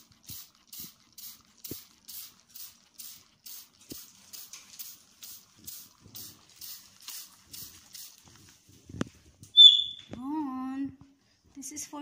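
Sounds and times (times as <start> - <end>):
spray bottle hissing mist: 0.3 - 8.2.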